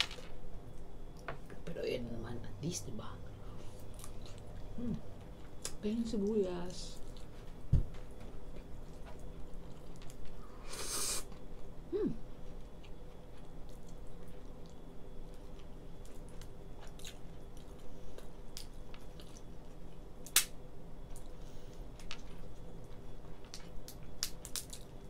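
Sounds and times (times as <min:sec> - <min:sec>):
person chewing: 0:12.5 - 0:19.8.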